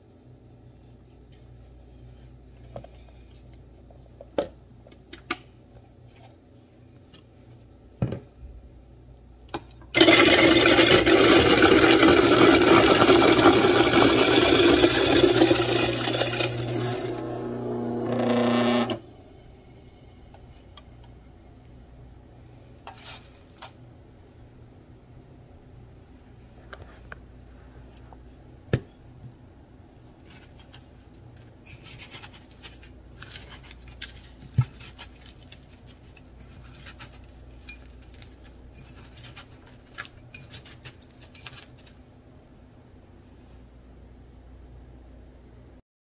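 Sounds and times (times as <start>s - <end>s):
ice shaver grinding ice: 10.0s - 19.0s
ice shaver motor whir: 10.0s - 19.1s.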